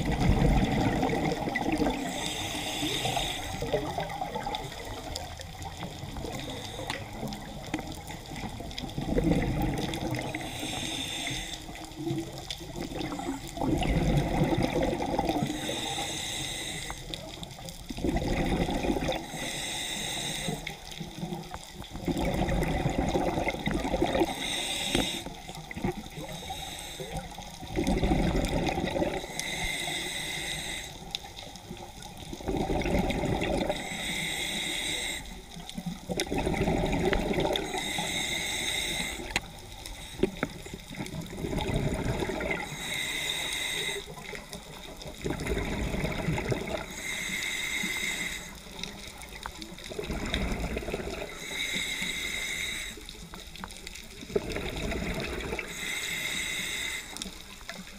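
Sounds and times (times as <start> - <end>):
bubbling exhale underwater: 0.0 - 5.2, 7.2 - 10.5, 12.0 - 15.6, 17.8 - 19.3, 21.2 - 26.3, 27.2 - 29.3, 32.3 - 33.9, 35.8 - 38.1, 40.2 - 42.8, 44.0 - 47.0, 49.3 - 51.6, 54.1 - 55.9
hissing regulator inhale: 1.7 - 7.8, 9.8 - 12.0, 14.3 - 17.6, 19.0 - 21.1, 23.2 - 32.2, 33.5 - 35.7, 36.8 - 40.9, 42.4 - 45.0, 46.7 - 53.8, 54.5 - 57.9.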